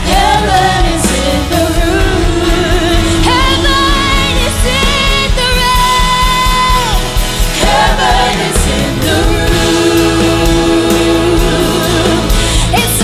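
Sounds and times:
backing singers: 0.0 - 13.0
band playing worship music: 0.0 - 13.0
woman singing into microphone: 0.0 - 13.0.

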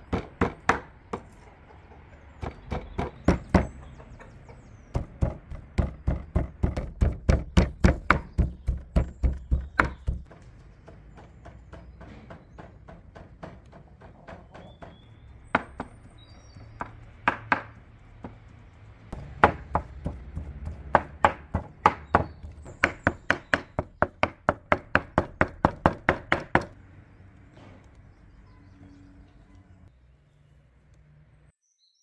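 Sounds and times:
cleaver chopping meat on wood: 0.0 - 1.3, 2.4 - 3.8, 4.9 - 13.8, 14.4 - 26.8.

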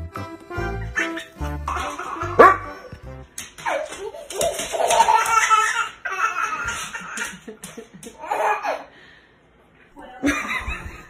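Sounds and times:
dog barking: 2.4 - 2.7.

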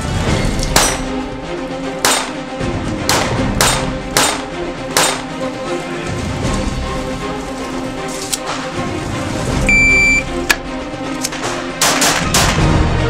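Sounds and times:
background music: 0.0 - 13.0
pistol shots: 2.0 - 2.4, 5.0 - 5.2.

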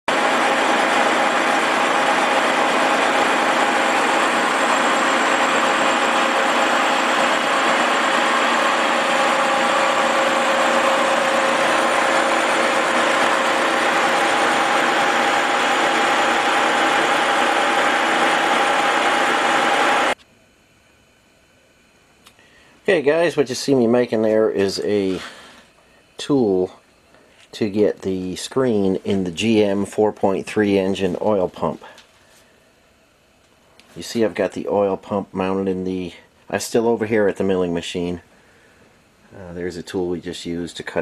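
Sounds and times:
milling machine cutting steel: 0.1 - 20.2.

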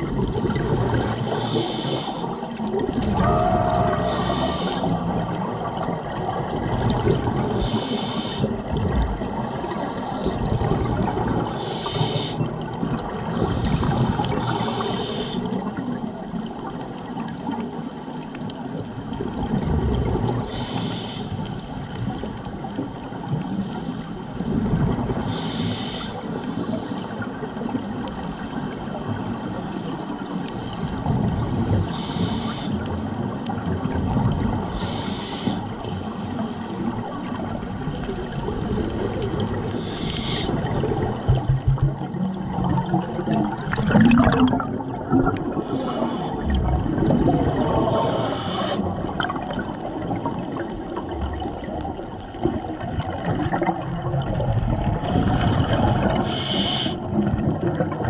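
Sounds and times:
gurgling bubbles: 0.0 - 58.0
regulator hissing inhale: 1.3 - 2.4, 3.9 - 5.4, 7.5 - 8.6, 9.5 - 10.6, 11.5 - 12.6, 13.3 - 15.6, 20.5 - 21.8, 25.2 - 27.3, 29.5 - 33.0, 34.7 - 37.0, 39.7 - 40.7, 45.5 - 46.6, 47.8 - 48.9, 55.0 - 57.1.

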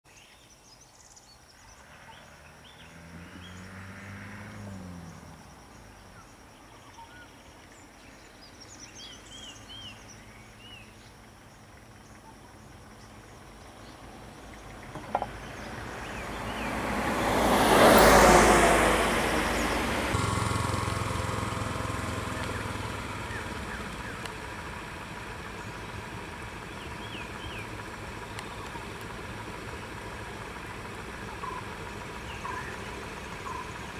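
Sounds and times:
birds chirping: 0.1 - 33.9
vehicle engine: 1.3 - 33.9.

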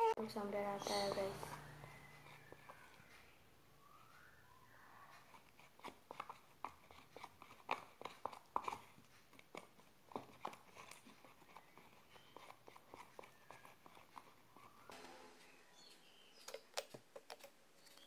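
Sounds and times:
slime squelching: 4.2 - 14.9.

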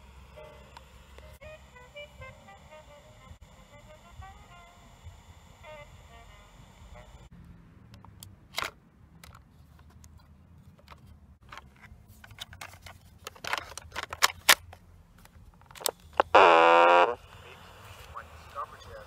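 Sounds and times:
cassette tape plastic clicks: 15.6 - 16.4.

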